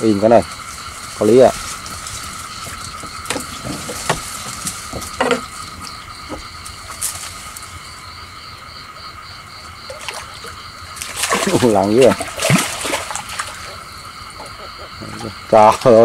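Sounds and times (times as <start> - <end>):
insects and frogs trilling: 0.0 - 16.0
knocks and splashes in water: 0.6 - 7.4, 9.8 - 14.5.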